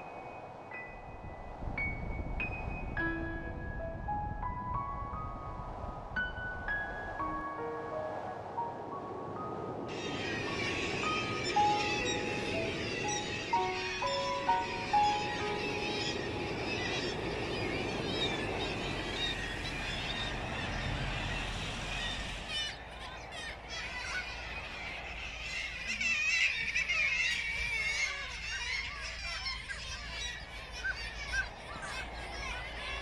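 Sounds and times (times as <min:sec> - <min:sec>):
gulls calling: 0:07.2 - 0:33.0.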